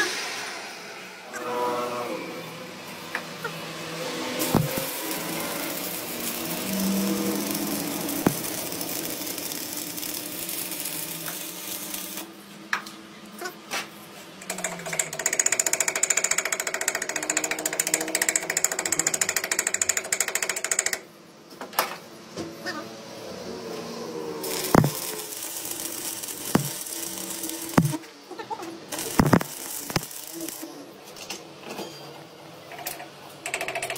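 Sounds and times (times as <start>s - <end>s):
fast buzzing rattle: 4.4s - 12.2s, 24.5s - 28.0s, 28.9s - 30.6s
arc welding crackling hiss: 4.4s - 12.4s, 24.4s - 28.1s, 28.8s - 30.8s.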